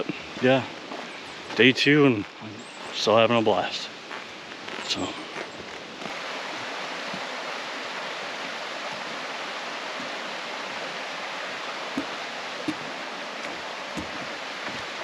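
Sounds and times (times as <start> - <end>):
running water: 0.0 - 15.0
faint knocks: 12.0 - 14.9.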